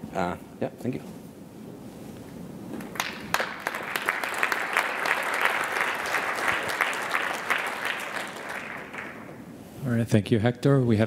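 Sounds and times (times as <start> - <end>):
audience applauding: 2.8 - 9.5.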